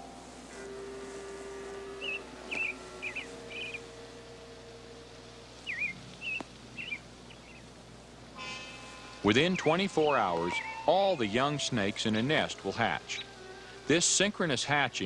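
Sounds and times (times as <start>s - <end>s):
soft held music notes: 0.0s - 15.0s
small bird chirping: 2.0s - 3.8s, 5.6s - 7.7s.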